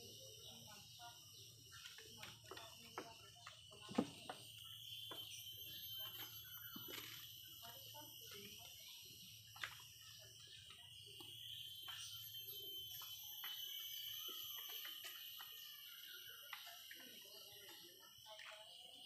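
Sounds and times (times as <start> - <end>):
small birds chirping: 0.0 - 19.0
high-pitched ringing: 3.5 - 9.4, 10.0 - 18.4.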